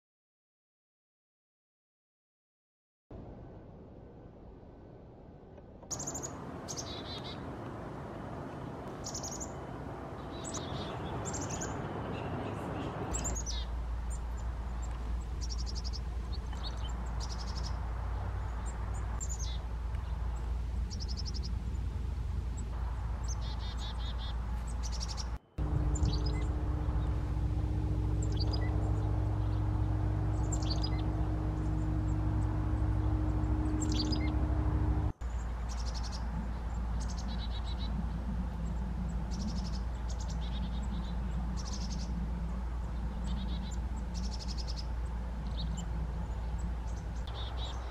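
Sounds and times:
chickadees calling: 5.9 - 7.5, 8.8 - 22.0, 22.6 - 38.0
steady low hum: 6.0 - 47.9.

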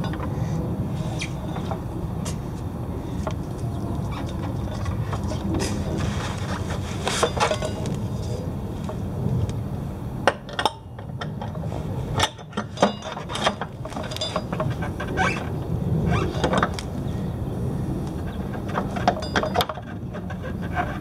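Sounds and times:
metal parts clinking: 12.2 - 14.7.

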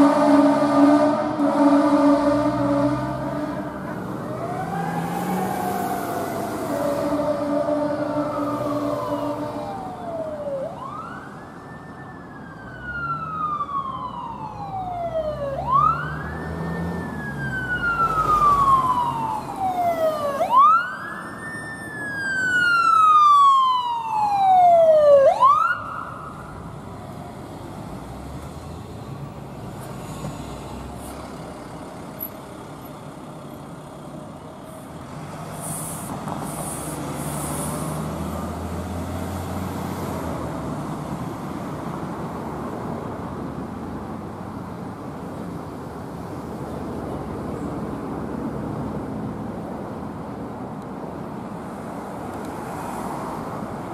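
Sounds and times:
heavy vehicle engine: 0.0 - 10.7, 26.1 - 52.4
emergency vehicle siren wailing: 0.0 - 28.1
traffic noise: 0.0 - 53.9.

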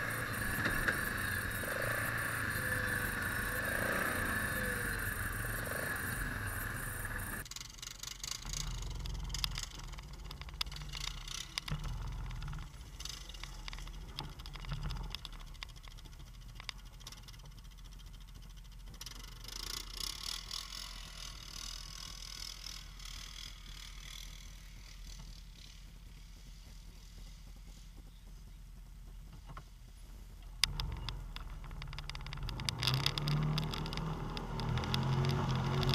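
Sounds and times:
off-road vehicle engines running: 0.0 - 35.9
knocks and rattles: 30.4 - 35.9.

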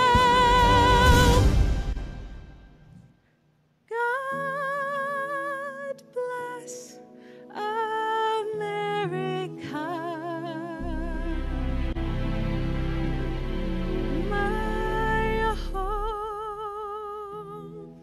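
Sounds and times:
sustained lower chords: 10.8 - 16.2.

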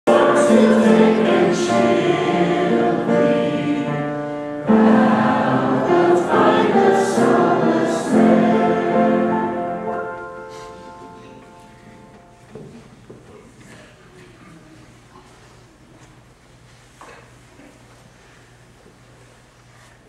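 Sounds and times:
group singing a hymn: 0.1 - 10.8.

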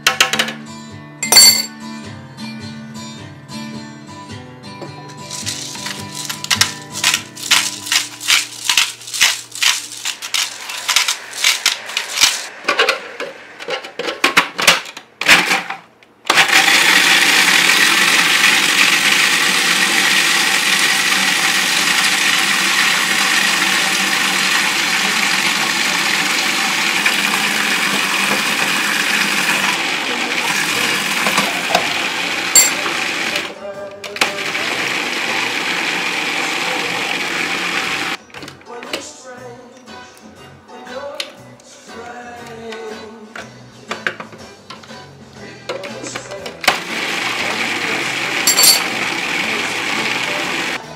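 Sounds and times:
food processor running: 16.3 - 33.5, 34.2 - 38.2, 46.6 - 50.8.

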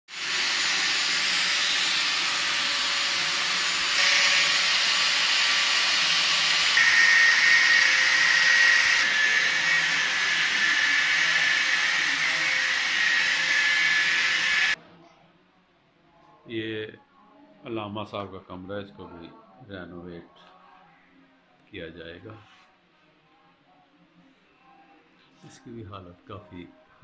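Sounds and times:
angle grinder cutting masonry: 0.1 - 14.8.

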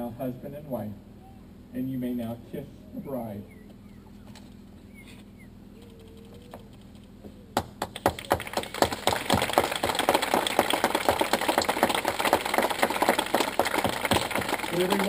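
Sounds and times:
crowd clapping: 7.6 - 15.0.

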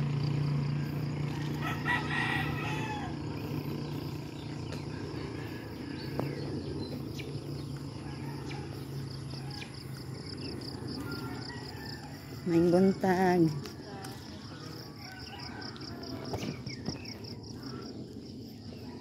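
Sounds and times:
steady low hum: 0.0 - 19.0
rooster crowing: 1.1 - 3.4, 4.7 - 6.6, 7.9 - 12.7, 14.6 - 16.8.

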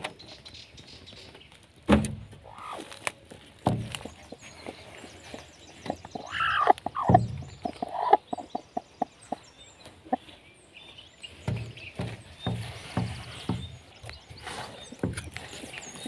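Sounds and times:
dry straw crackling: 0.0 - 8.5, 12.5 - 16.0
hen clucking: 2.4 - 3.0, 3.9 - 10.4.

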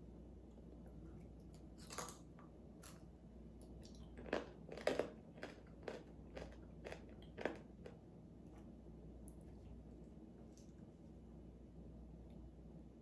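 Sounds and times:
person chewing crunchy snack: 1.8 - 3.0, 3.9 - 8.0.

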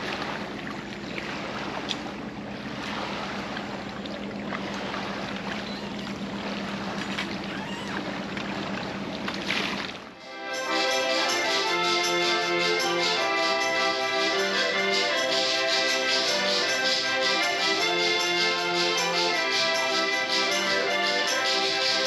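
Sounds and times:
water splashing and sloshing: 0.0 - 10.2
steady low hum: 0.0 - 10.3.

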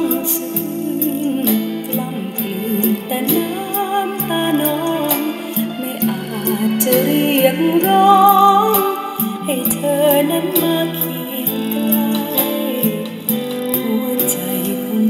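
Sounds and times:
song from small speakers: 0.0 - 15.0.

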